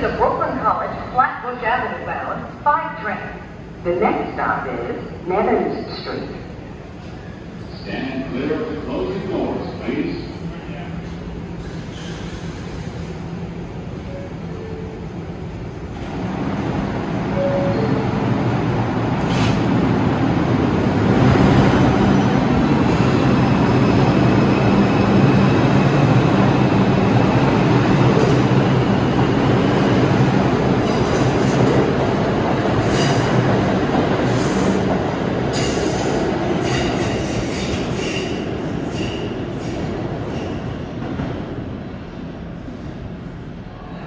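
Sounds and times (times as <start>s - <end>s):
train running noise: 0.0s - 44.0s.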